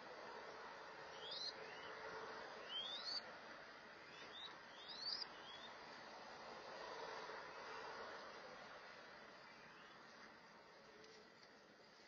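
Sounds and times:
dove chicks whistling: 1.1s - 2.0s, 2.6s - 3.2s, 4.1s - 5.8s.

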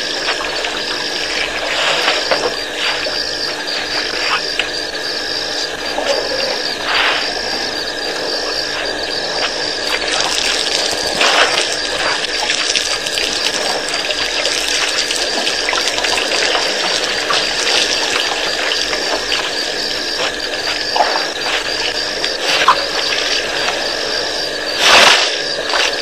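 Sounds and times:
water gushing and splashing: 9.8s - 23.6s.

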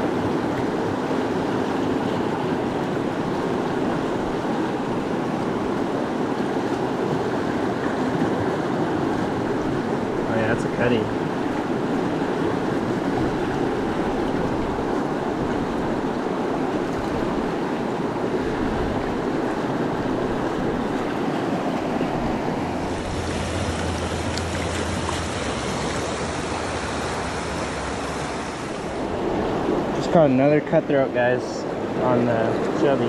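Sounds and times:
river rapids rushing over rocks: 18.4s - 30.0s.

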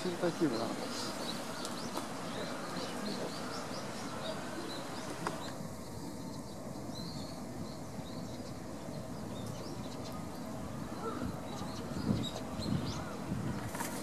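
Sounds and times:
birds chirping faintly: 0.0s - 14.0s
murmur of distant voices: 0.0s - 14.0s.

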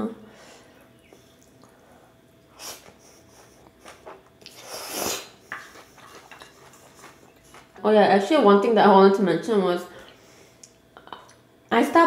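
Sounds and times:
noodle slurp: 4.0s - 7.1s.

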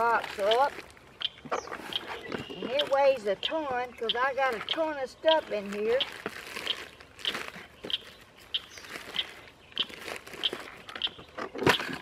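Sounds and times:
plastic tackle box clicks and rattles: 9.8s - 12.0s.

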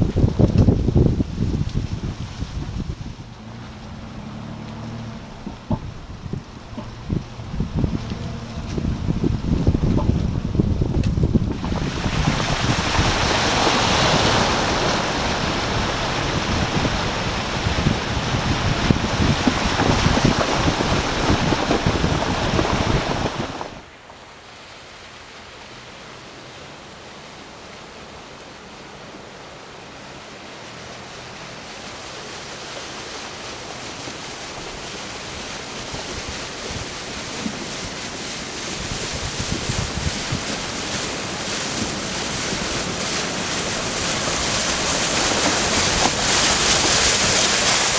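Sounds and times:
wind buffeting microphone: 0.0s - 23.9s, 34.1s - 47.9s
off-road vehicle approaching: 0.0s - 47.9s
vehicle engine and tyre noise: 0.0s - 47.9s.

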